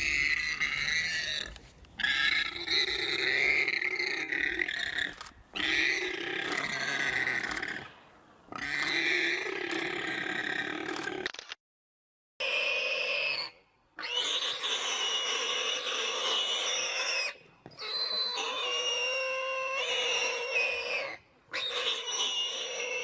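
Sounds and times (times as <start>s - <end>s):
warthog squealing: 12.4s - 23.0s.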